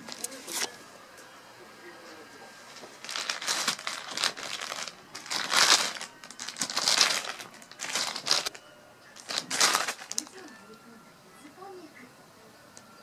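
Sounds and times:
plastic bag crinkling: 2.9 - 8.6, 9.2 - 10.6.

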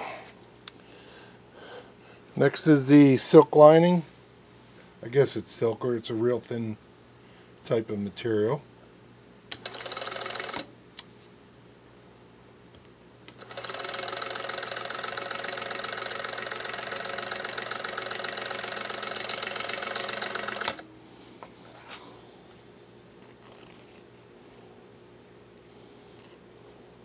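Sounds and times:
sewing machine running: 9.6 - 10.7, 13.3 - 20.8.

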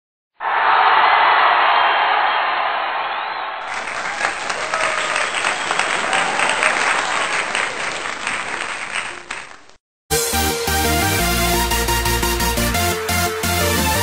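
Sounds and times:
crowd applauding: 0.5 - 9.8.

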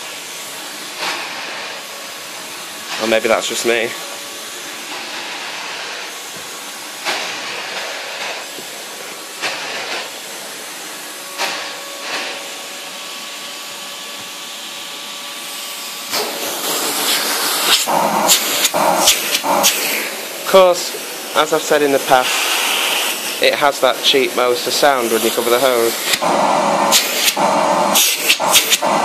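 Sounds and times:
vacuum cleaner running: 0.0 - 29.0
vacuum floor tool swishing on carpet: 4.0 - 13.1, 15.6 - 20.4.

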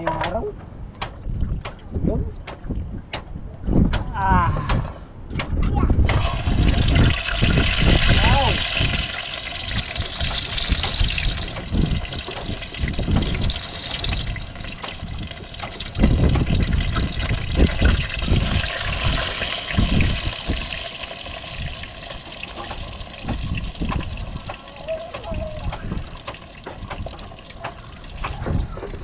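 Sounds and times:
low rumbles: 0.0 - 29.0
fish sizzling in hot oil: 6.1 - 29.0.

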